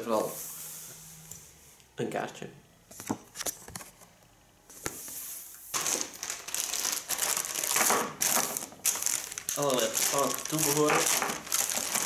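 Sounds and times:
plastic bag crinkling: 0:05.7 - 0:12.0.

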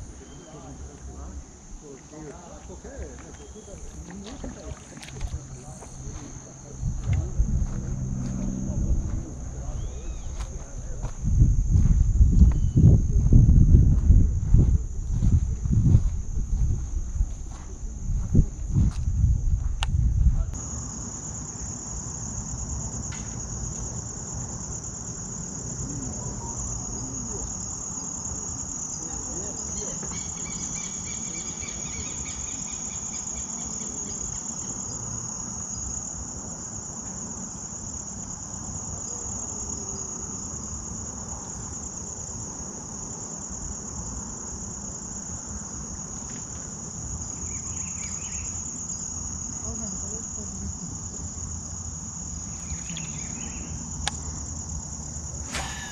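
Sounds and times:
insects singing: 0:00.0 - 0:55.9
low rumble: 0:05.2 - 0:20.6.

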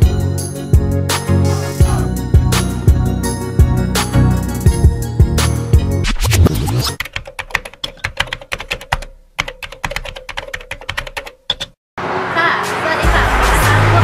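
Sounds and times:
music track: 0:00.0 - 0:07.0, 0:12.2 - 0:14.0
keyboard typing clicks: 0:07.0 - 0:11.8.

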